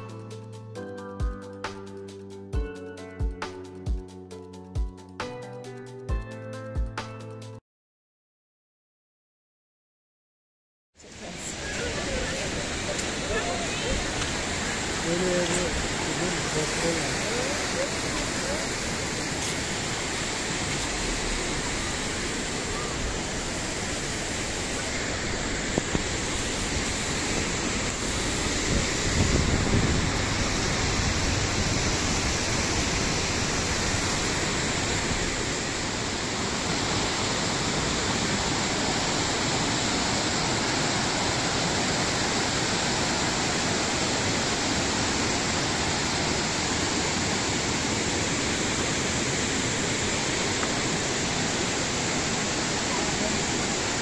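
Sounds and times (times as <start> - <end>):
waterfall rushing: 11.0 - 54.0.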